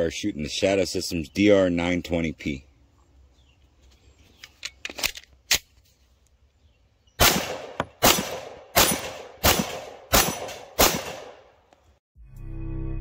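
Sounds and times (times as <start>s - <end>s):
pistol shots echoing: 7.2s - 11.6s.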